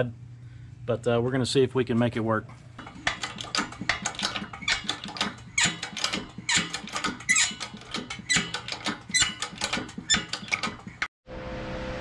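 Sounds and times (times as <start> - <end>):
sharp metallic clicks and squeaks: 2.8 - 11.1.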